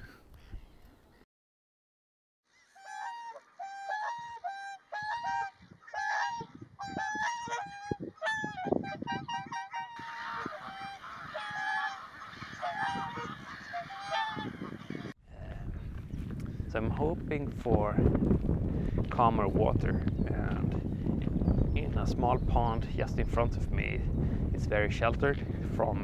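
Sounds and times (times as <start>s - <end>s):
geese honking: 2.5s - 15.1s.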